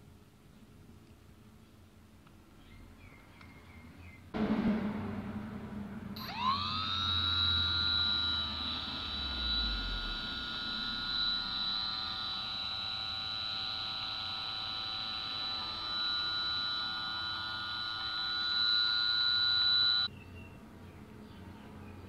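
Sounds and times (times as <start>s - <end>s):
electric motor drill whine: 6.2s - 20.1s.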